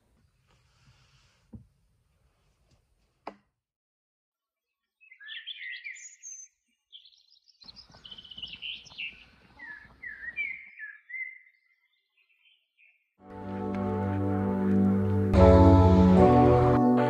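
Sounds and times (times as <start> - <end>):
songbirds singing: 4.7 - 13.2.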